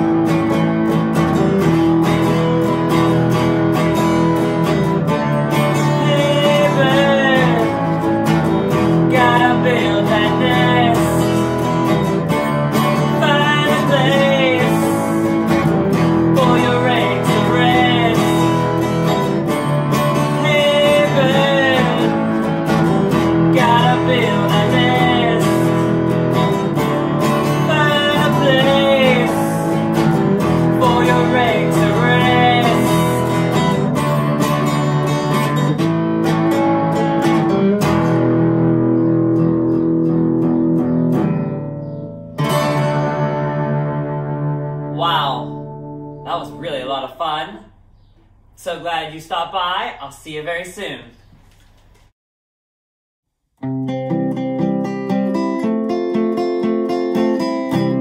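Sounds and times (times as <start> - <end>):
acoustic guitar strumming: 0.0 - 50.0, 53.6 - 58.0
man singing: 5.4 - 12.1, 12.7 - 19.2, 20.0 - 34.0.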